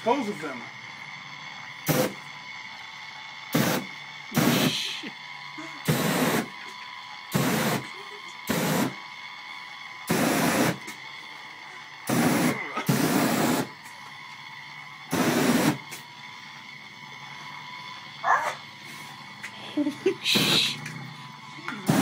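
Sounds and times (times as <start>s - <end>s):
flame bursts whooshing: 3.5s - 5.0s, 10.1s - 11.1s, 12.0s - 16.8s.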